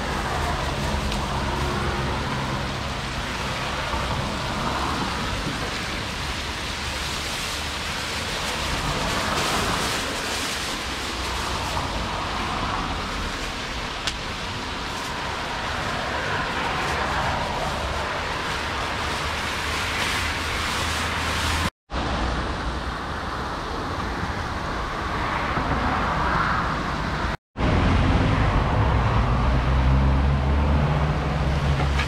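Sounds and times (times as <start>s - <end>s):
plastic bag rustling: 0.0s - 21.7s.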